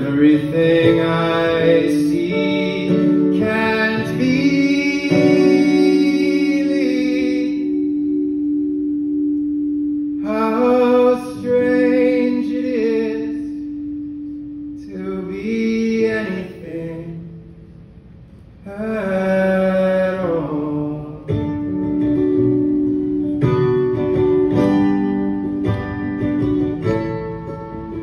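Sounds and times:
person singing long notes: 0.0s - 8.5s
acoustic guitar strumming: 0.0s - 28.0s.

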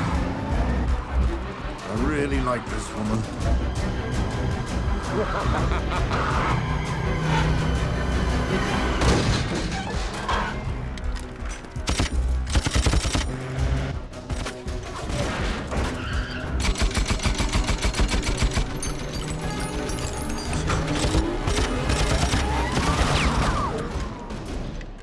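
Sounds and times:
background music: 0.0s - 25.0s
automatic rifle fire: 11.9s - 13.3s.

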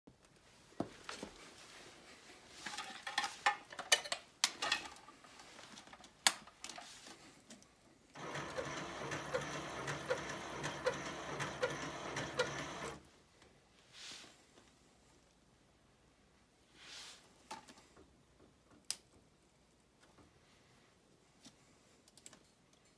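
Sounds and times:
rotator motors whirring: 8.2s - 13.0s.

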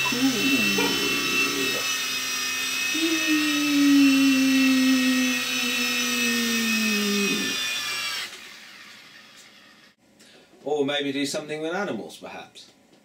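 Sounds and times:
toy helicopter motor whine: 0.0s - 10.0s.

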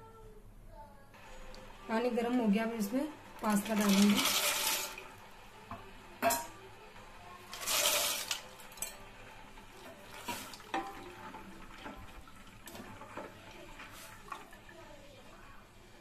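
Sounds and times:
spoon stirring pasta in water: 9.8s - 14.7s.

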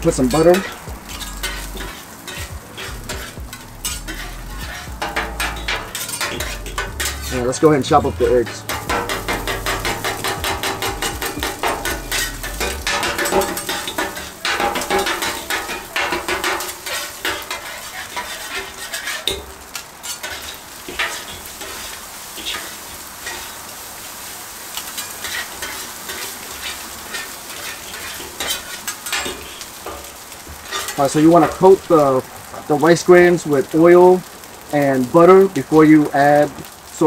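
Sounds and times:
food sizzling: 0.0s - 37.0s
metal spatula tapping on griddle: 0.3s - 7.3s, 8.6s - 21.8s.

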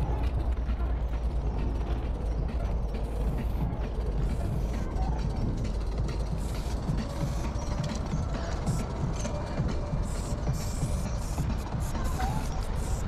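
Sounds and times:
steady low rumble: 0.0s - 13.0s
spray paint hiss: 8.6s - 13.0s.

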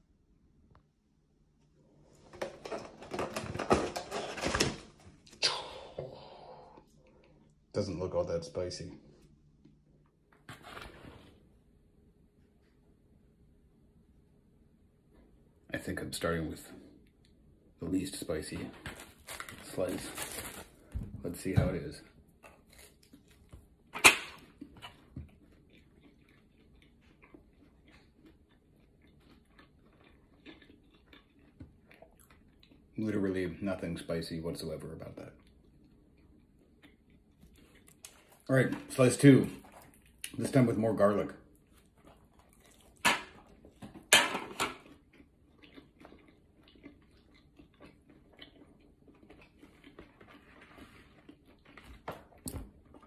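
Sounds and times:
faint chewing: 22.1s - 33.2s, 35.0s - 40.7s, 41.4s - 53.0s.

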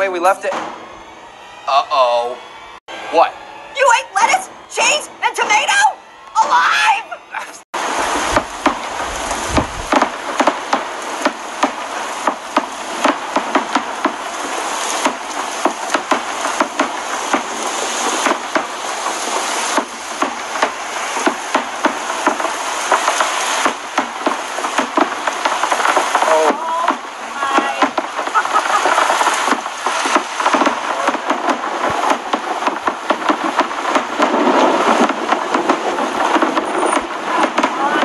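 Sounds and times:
low rumble: 7.8s - 11.0s
heavy rain falling: 7.8s - 38.0s.

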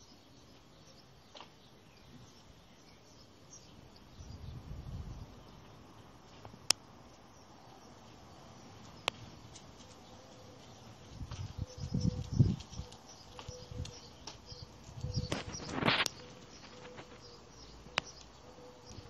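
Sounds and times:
low rumble: 4.1s - 5.6s
faint bird chirps: 10.0s - 19.0s.

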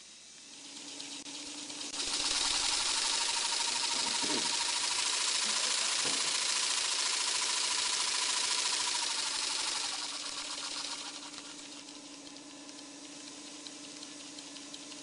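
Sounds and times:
steady hum: 0.0s - 15.0s
mechanism ticking: 0.2s - 15.0s.

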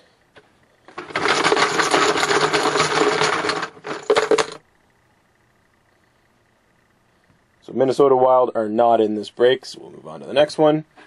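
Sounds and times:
plastic chips clattering: 0.9s - 4.6s.

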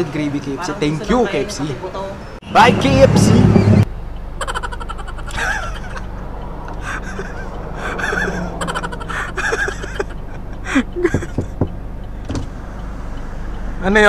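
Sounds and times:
steady low hum: 2.5s - 13.7s
sharp knocks: 11.0s - 12.6s.

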